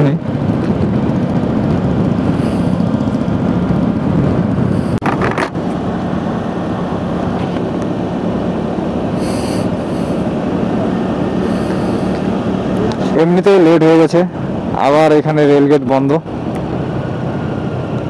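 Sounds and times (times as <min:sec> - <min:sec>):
road and wind noise: 0:00.0 - 0:18.0
scooter engine drone: 0:00.0 - 0:18.0.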